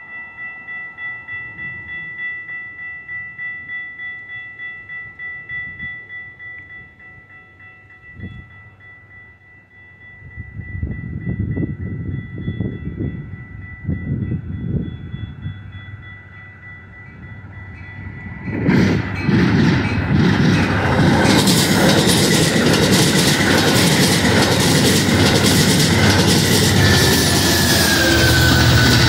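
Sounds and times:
low train rumble with thin tone: 0:00.0 - 0:29.0
train cars clattering past: 0:15.7 - 0:29.0
wheels clicking over rail joints: 0:18.6 - 0:29.0.

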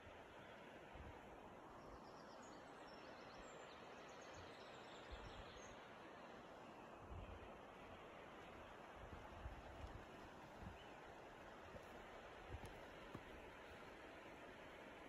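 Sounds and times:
river flowing over stones: 0:05.8 - 0:15.0.

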